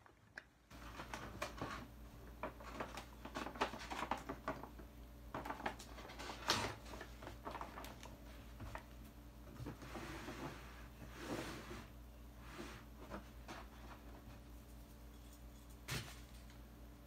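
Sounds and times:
plastic bottles clicking and tapping: 2.4 - 6.0.

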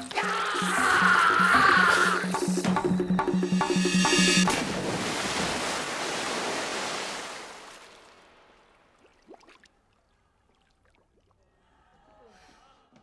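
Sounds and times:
water churning and washing: 0.0 - 11.3
body crashing into pond: 4.5 - 9.1.

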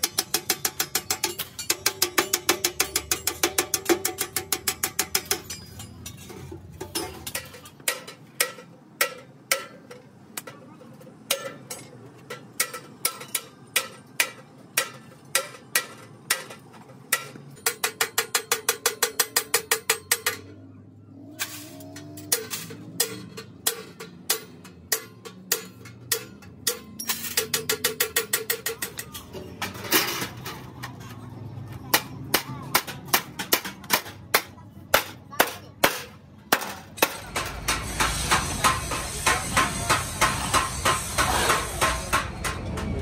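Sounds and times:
steady background noise: 0.0 - 43.0
hammer blows on sheet steel: 31.9 - 43.0.

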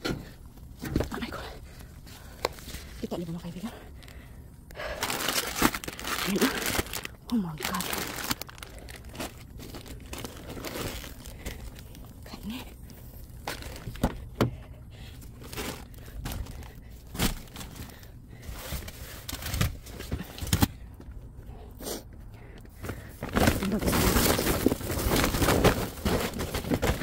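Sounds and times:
plastic bags crinkling: 4.8 - 14.4, 15.1 - 20.7, 22.9 - 27.0.

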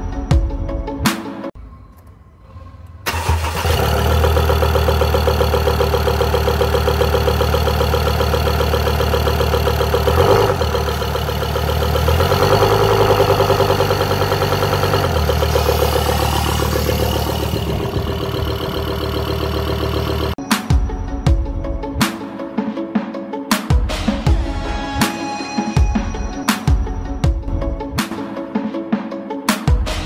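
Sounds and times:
diesel engine idling: 3.0 - 20.4.

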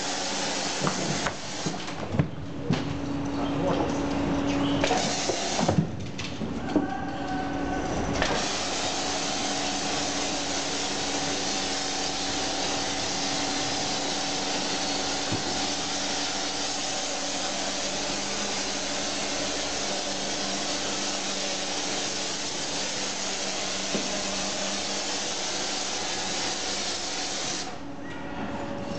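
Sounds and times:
sprayer hiss: 0.0 - 1.8, 4.9 - 5.8, 8.2 - 27.8.

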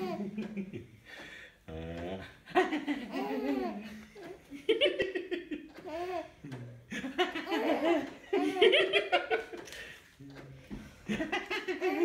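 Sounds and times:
baby giggling: 0.0 - 0.7, 2.6 - 6.4, 7.2 - 9.2, 11.4 - 12.0.

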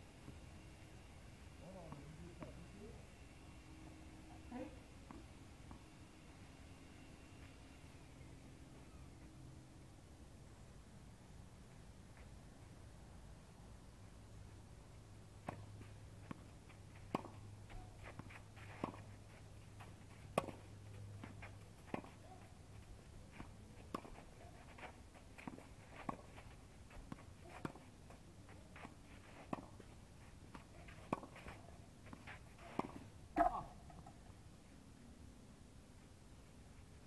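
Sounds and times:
low hum: 0.0 - 37.0.

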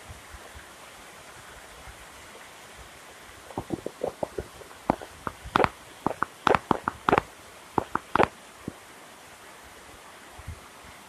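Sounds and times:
rain falling: 0.0 - 11.0
sharp taps near microphone: 3.5 - 8.3.

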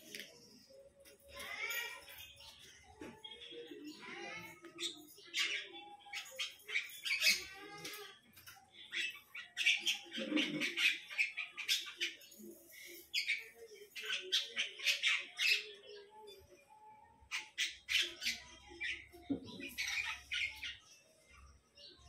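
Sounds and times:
animal squawking and chirping: 4.0 - 8.1, 8.8 - 12.3.

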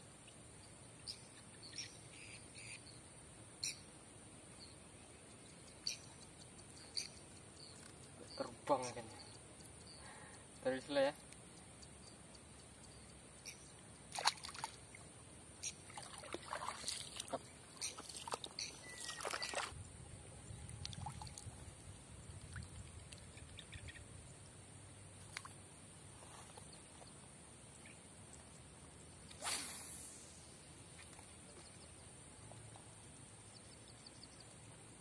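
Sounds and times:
hands splashing in shallow water: 14.1 - 14.8, 15.9 - 19.7.

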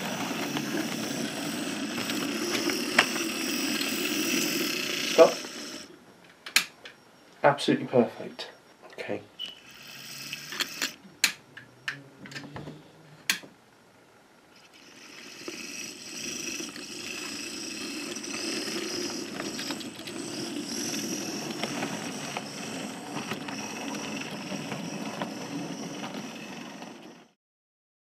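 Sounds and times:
model train running on rails: 0.0 - 5.9, 14.7 - 27.4
sharp clicks: 6.5 - 7.0.

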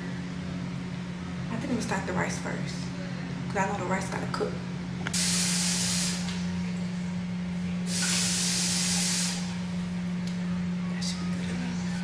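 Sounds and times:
faucet water hissing: 5.2 - 6.4, 7.9 - 9.5.

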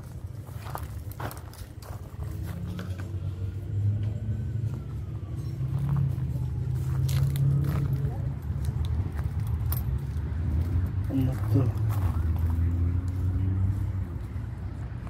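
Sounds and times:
footsteps on gravel: 0.0 - 3.2, 5.7 - 13.5
vehicle engine rumbling: 0.0 - 15.0.

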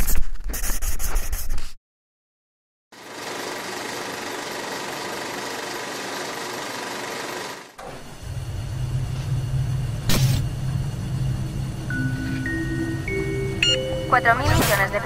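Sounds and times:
low mechanical rumble: 7.8 - 15.0.

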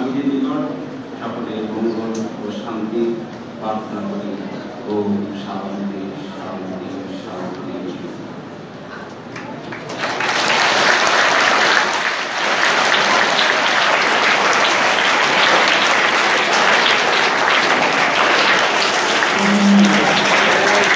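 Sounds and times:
audience applauding: 9.3 - 20.9.

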